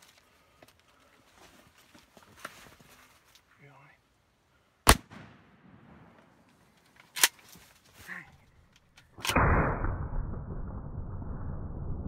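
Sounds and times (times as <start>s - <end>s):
shotgun shots: 4.9s - 6.2s.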